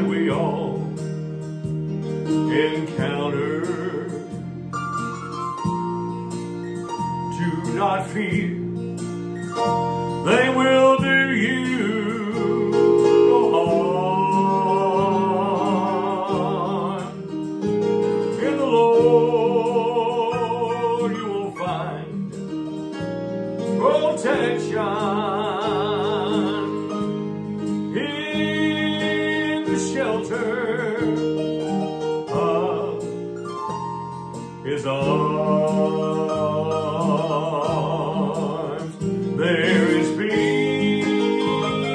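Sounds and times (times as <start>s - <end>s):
instrumental accompaniment: 0.0s - 41.9s
solo voice singing with vibrato: 10.2s - 17.3s, 18.4s - 22.1s, 23.8s - 27.0s, 27.9s - 33.3s, 34.6s - 41.9s.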